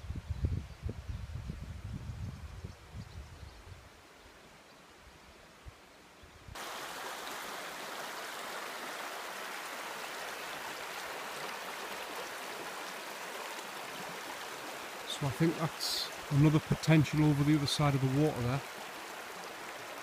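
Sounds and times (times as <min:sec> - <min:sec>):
stream running: 0:06.5 - 0:20.0.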